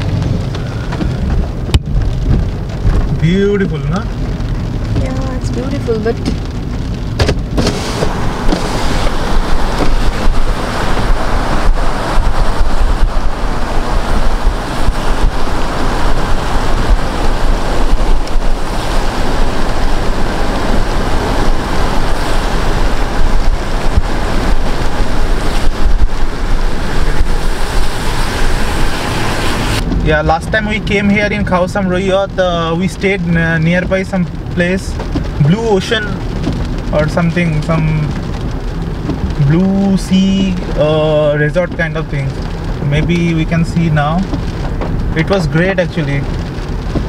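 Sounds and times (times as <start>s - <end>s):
wind buffeting microphone: 0.0s - 3.2s, 4.0s - 30.2s
tyre hiss on wet road: 7.5s - 29.8s.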